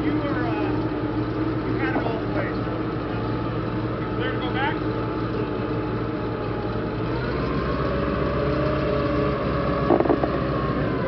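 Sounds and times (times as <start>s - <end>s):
tracked vehicle engine running: 0.0s - 11.0s
sharp knocks: 9.9s - 10.4s.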